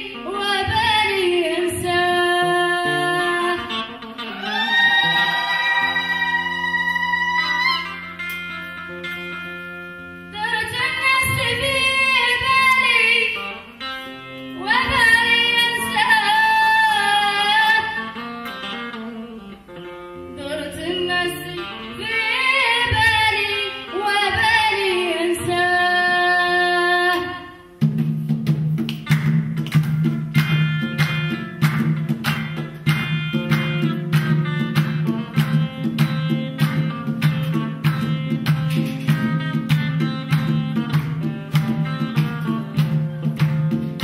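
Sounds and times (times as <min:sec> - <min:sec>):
woman singing: 0:00.0 - 0:08.0, 0:10.3 - 0:13.7, 0:14.6 - 0:18.2, 0:20.4 - 0:27.6
electric guitar: 0:00.0 - 0:24.8, 0:28.4 - 0:44.0.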